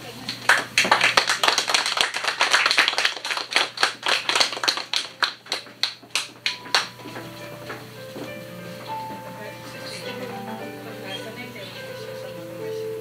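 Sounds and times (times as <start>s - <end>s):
audience applauding: 0.2s - 7.0s.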